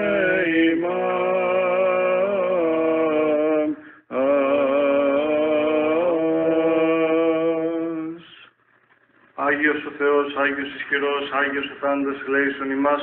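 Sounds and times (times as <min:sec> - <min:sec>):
men singing chant: 0:00.0 - 0:08.2.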